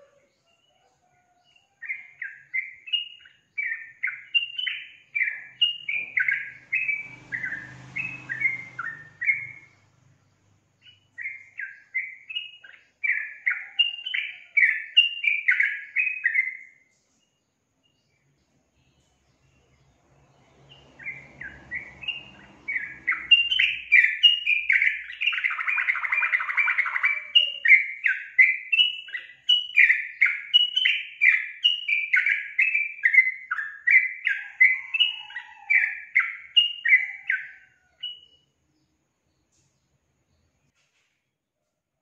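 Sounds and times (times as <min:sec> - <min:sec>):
bird chirping: 0:00.0 - 0:41.7.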